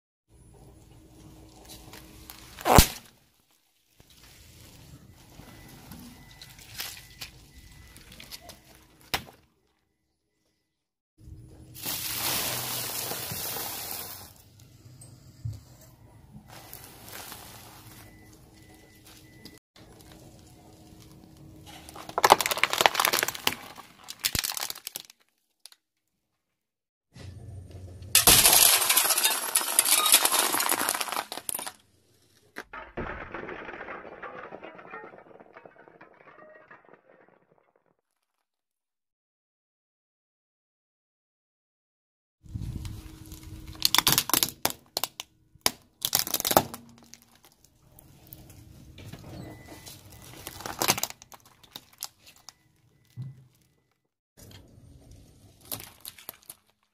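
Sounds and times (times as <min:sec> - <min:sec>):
cracking and crunching: 0:01.6 - 0:04.3, 0:16.5 - 0:25.8, 0:28.2 - 0:37.6, 0:42.7 - 0:48.7, 0:49.5 - 0:53.9, 0:55.4 - 0:56.9
plastic toys cracking under tyre: 0:21.8 - 0:25.8, 0:28.2 - 0:31.8, 0:43.7 - 0:47.7, 0:50.2 - 0:53.2, 0:55.5 - 0:56.9
tyre crushing plastic plate: 0:21.9 - 0:25.1, 0:28.2 - 0:31.8.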